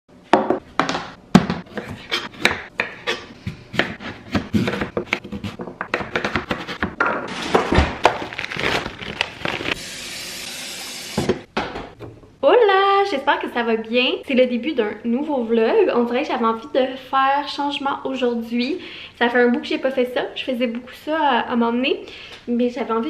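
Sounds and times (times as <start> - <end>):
knife cutting on cutting board: 1.7 - 7.0.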